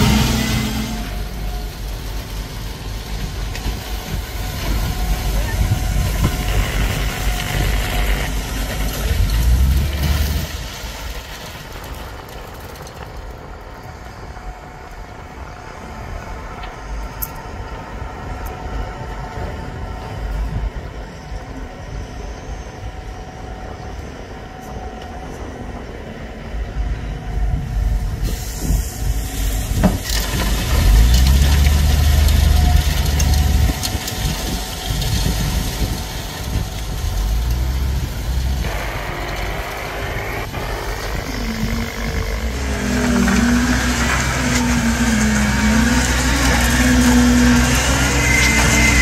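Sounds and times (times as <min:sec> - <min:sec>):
heavy diesel pump engine under load: 0:00.0 - 0:12.2, 0:13.4 - 0:49.0.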